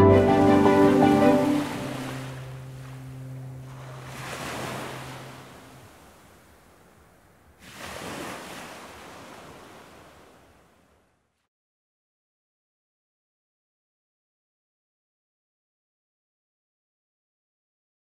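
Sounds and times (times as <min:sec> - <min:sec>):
soundtrack music chord: 0:00.0 - 0:03.7
sea waves washing on shore: 0:00.2 - 0:11.4.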